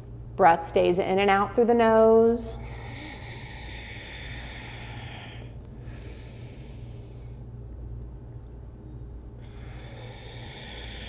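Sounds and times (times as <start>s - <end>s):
steady low hum: 0.0s - 11.0s
woman breathing through nose: 2.6s - 7.5s, 9.4s - 11.0s.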